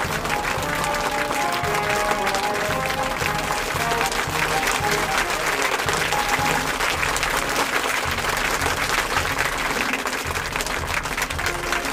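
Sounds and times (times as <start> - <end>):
crowd applause: 0.0 - 11.9.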